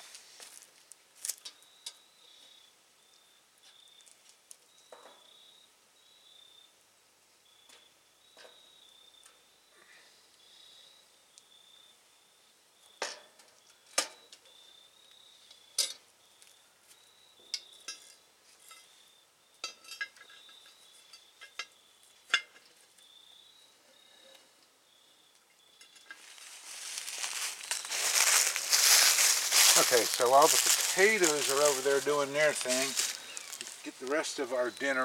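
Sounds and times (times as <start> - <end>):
rustling hiss: 0.0 - 1.4, 26.1 - 35.0
faint high pulsing chirp: 23.0 - 35.0.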